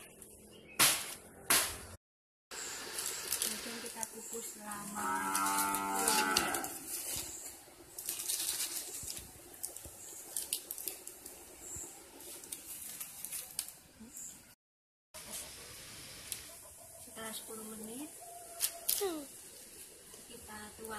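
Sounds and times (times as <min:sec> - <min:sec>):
light crackles and rustles: 0:04.4 - 0:14.4
cow mooing: 0:04.8 - 0:06.8.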